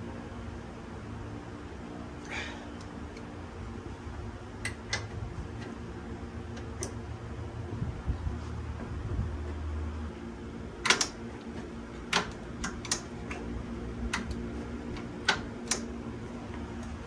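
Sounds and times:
steady low hum: 0:00.0 - 0:17.0
sharp clicks and taps: 0:12.1 - 0:13.5.

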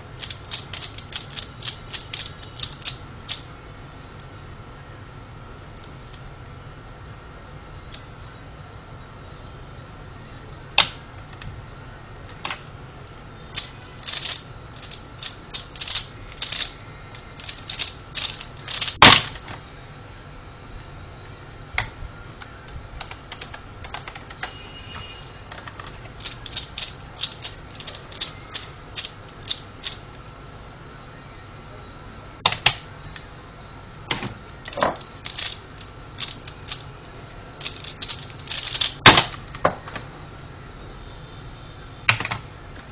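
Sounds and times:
plastic puzzle clicking: 0:00.2 - 0:03.5, 0:12.3 - 0:19.6, 0:23.0 - 0:24.6, 0:25.5 - 0:30.1, 0:34.1 - 0:40.0.

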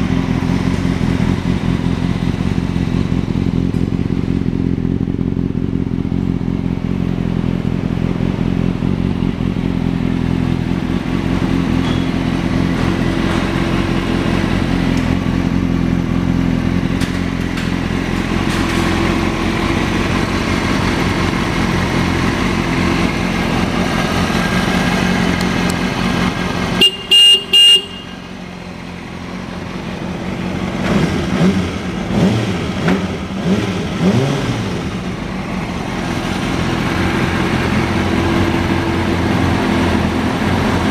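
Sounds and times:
motorcycle engine idling: 0:00.0 - 0:34.0, 0:34.7 - 0:40.9
horn beeps: 0:26.8 - 0:28.3
engine revving: 0:30.3 - 0:40.9.

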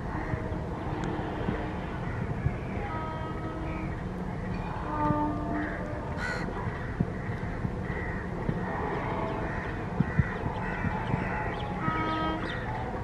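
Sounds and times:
low steady rumble: 0:00.0 - 0:13.0
crows cawing: 0:05.6 - 0:08.3, 0:09.4 - 0:11.5.

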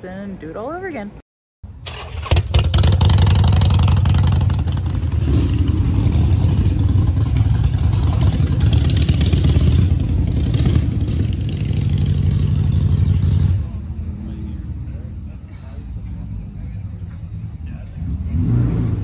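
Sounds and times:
motorcycle engine idling: 0:01.9 - 0:14.3.

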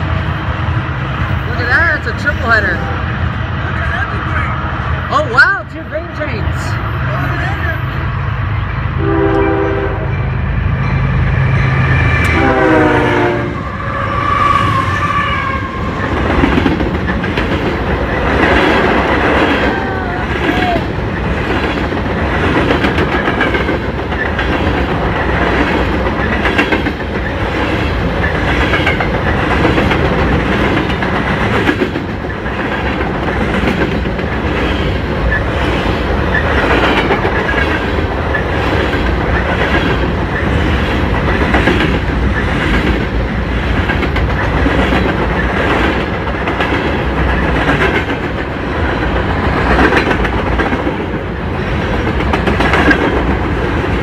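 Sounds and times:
train wheels rumbling: 0:00.0 - 0:54.0
clickety-clack over rail joints: 0:16.0 - 0:54.0.

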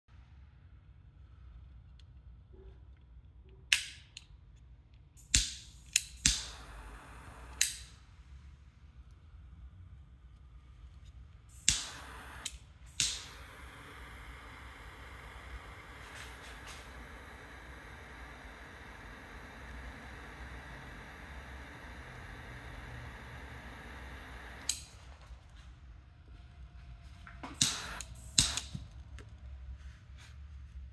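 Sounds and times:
torch flame hissing: 0:05.2 - 0:08.6, 0:11.4 - 0:25.6, 0:27.4 - 0:28.9
lighter clicks: 0:05.3 - 0:08.0, 0:11.6 - 0:25.0, 0:27.6 - 0:28.8.

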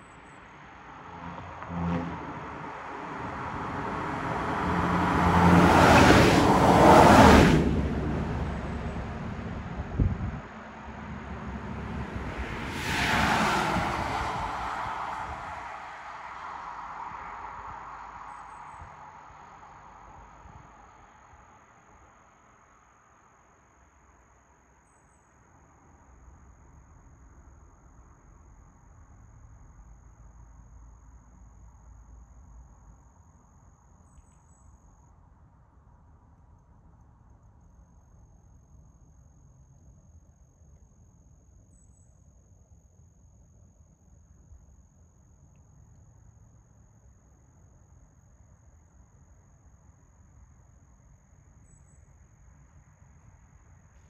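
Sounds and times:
traffic noise: 0:00.0 - 0:54.0
vehicle tyres passing: 0:00.6 - 0:19.0.

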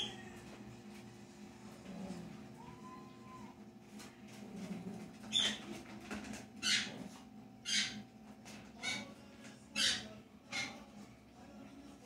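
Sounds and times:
animal high-pitched calls: 0:02.6 - 0:03.6, 0:06.6 - 0:08.0.

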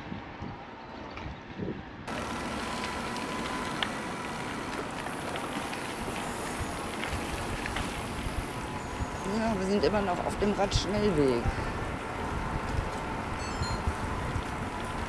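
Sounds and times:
e-bike rolling noise: 0:00.0 - 0:15.0
wind: 0:00.0 - 0:15.0.

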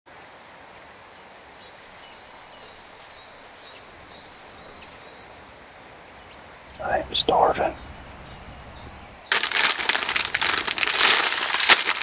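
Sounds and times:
steady outdoor hiss: 0:00.1 - 0:12.0
faint bird chirps: 0:00.8 - 0:09.3.

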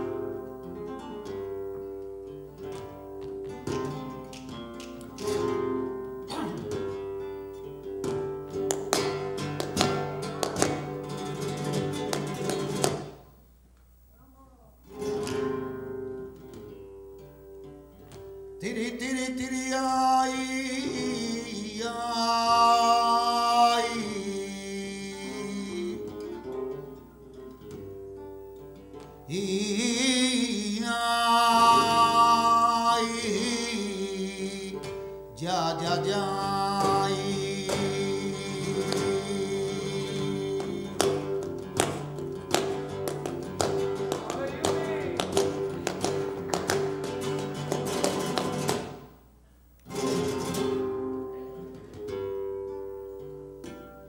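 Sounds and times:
flamenco guitar: 0:00.0 - 0:13.4, 0:14.8 - 0:54.0
man singing flamenco: 0:18.5 - 0:27.8, 0:29.1 - 0:49.1.

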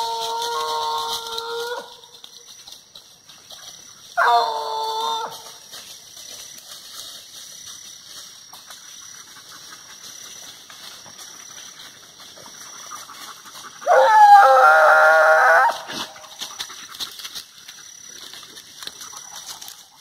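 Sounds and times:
rustling in dry leaves: 0:00.0 - 0:20.0
hound baying: 0:04.2 - 0:05.6, 0:12.8 - 0:16.7.

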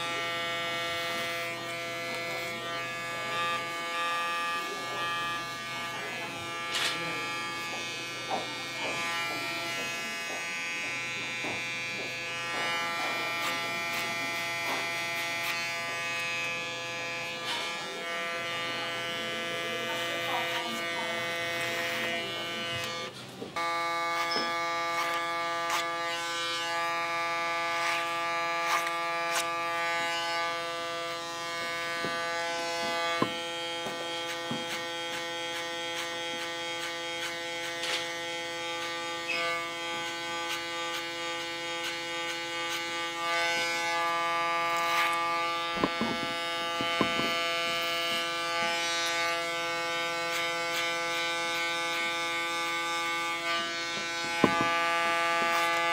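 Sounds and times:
electric hair clippers buzzing: 0:00.0 - 0:55.9.

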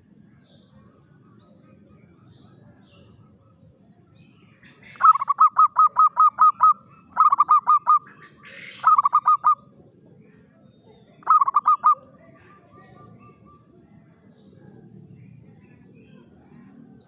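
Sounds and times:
dove staccato calls: 0:04.6 - 0:09.7, 0:11.2 - 0:13.7.

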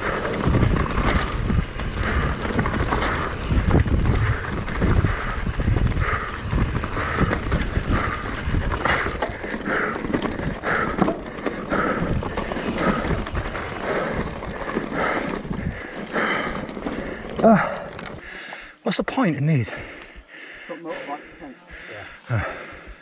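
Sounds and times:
wind buffeting microphone: 0:00.0 - 0:18.2
bike rattling over gravel: 0:00.0 - 0:18.4.

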